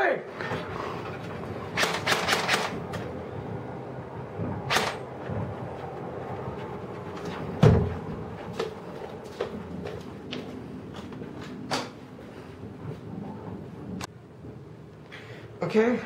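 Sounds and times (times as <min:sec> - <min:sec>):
heavy thud: 0:07.6 - 0:08.1.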